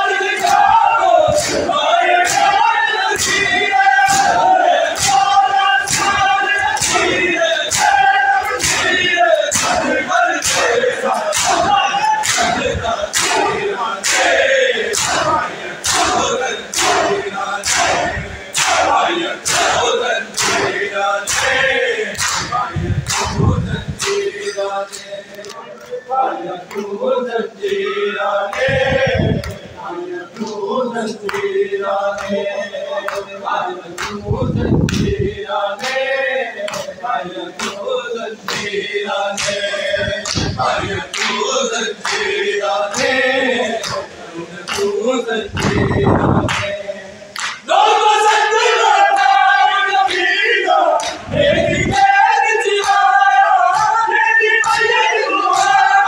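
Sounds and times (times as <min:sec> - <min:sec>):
men chanting in unison: 0:00.0 - 0:56.0
collective chest slaps: 0:40.2 - 0:41.4.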